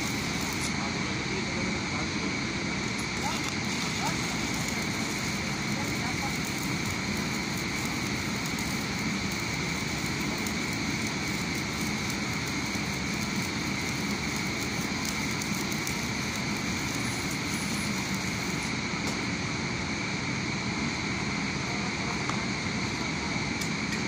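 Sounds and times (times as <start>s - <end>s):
welding arc crackling: 0.0s - 1.6s, 2.8s - 19.4s.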